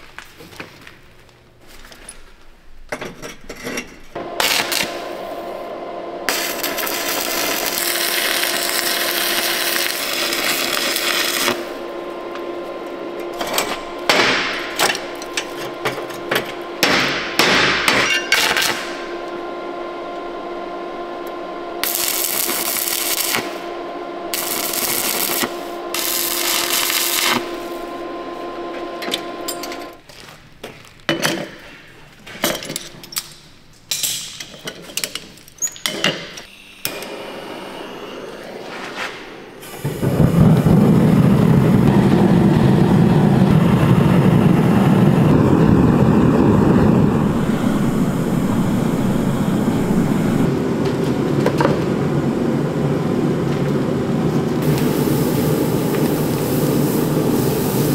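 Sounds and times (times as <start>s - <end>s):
welding machine hum: 3.8s - 30.3s, 36.8s - 57.9s
welding arc crackling and hissing: 4.2s - 19.3s, 21.3s - 30.2s, 39.6s - 57.9s.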